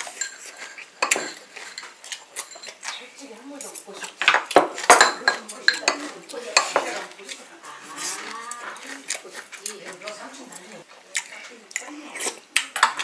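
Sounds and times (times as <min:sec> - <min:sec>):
utensils clinking on ceramic bowl: 0:00.0 - 0:07.5, 0:12.6 - 0:13.0.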